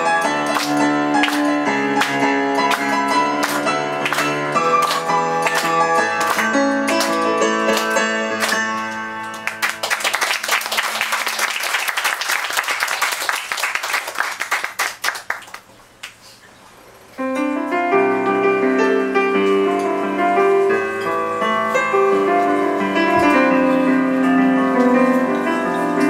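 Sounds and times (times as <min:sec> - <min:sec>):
keyboard playing chords: 0:00.0 - 0:10.0, 0:17.2 - 0:26.0
audience applauding: 0:00.0 - 0:16.2.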